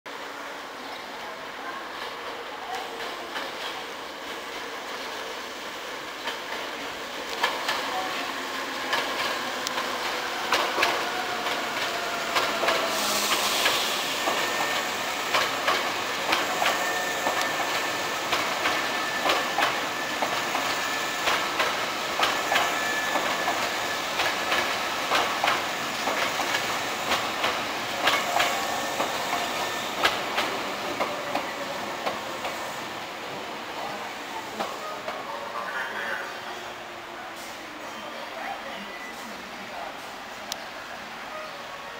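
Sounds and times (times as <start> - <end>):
train wheels clicking over joints: 6.1 - 33.0
brief hiss: 12.8 - 14.6.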